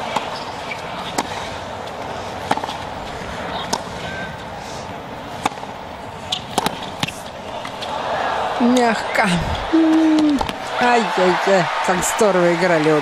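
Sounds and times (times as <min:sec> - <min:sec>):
tennis ball struck by rackets: 0:01.1 - 0:01.4, 0:02.4 - 0:02.8, 0:05.4 - 0:07.8.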